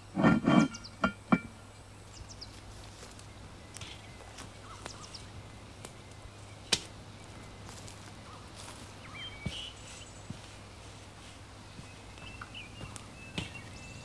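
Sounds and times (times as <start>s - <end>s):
faint bird chirps: 1.8s - 5.4s, 6.0s - 10.6s, 11.7s - 14.0s
campfire crackling: 2.5s - 9.1s.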